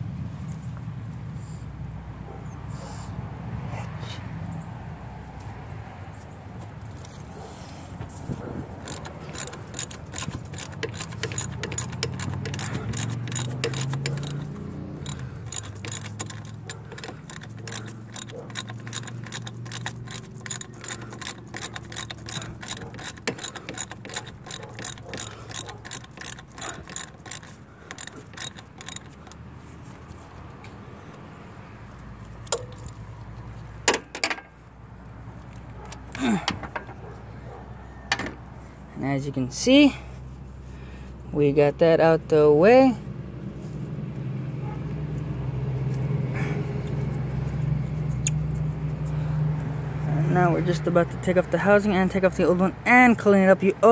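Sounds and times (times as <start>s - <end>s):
ratchet wrench clicking: 8.8s - 29.5s.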